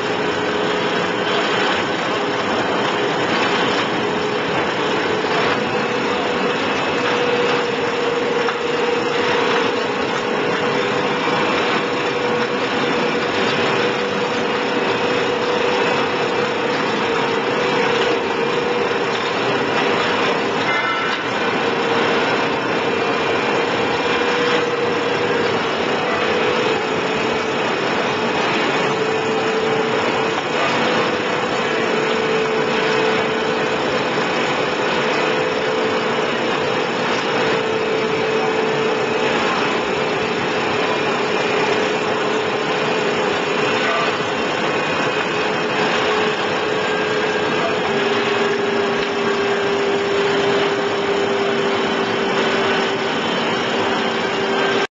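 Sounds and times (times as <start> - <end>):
welding arc crackling hiss: 0.0 - 54.9.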